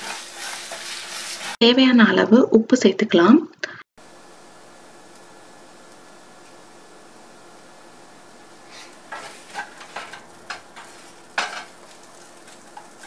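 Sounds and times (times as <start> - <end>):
wooden spatula scraping pan: 0.0 - 1.6, 8.7 - 13.0
faint steady sizzle: 0.0 - 2.1, 4.0 - 13.0.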